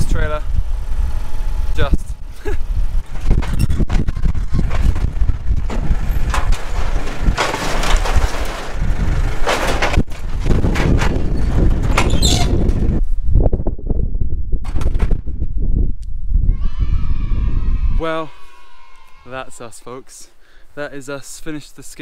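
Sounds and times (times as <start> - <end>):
tractor engine running: 0.0 - 13.1
scrap metal scraping: 3.1 - 12.9
scrap metal knocks: 3.2 - 12.9.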